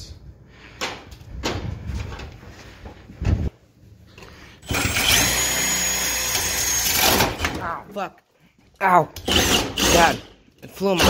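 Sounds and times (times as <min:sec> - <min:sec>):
cordless drill boring into metal: 0:04.6 - 0:07.4, 0:09.2 - 0:10.2.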